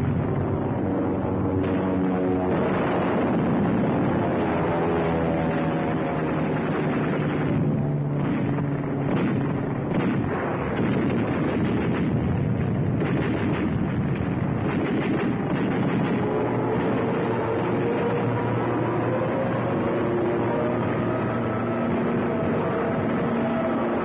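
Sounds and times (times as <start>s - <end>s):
continuous rumble: 0.0s - 24.0s
explosions: 1.5s - 4.6s, 6.5s - 18.4s
gunfire: 8.2s - 17.6s.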